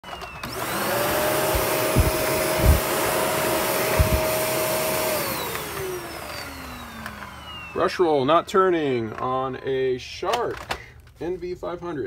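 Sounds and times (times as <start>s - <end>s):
vacuum motor whine: 0.0s - 9.2s.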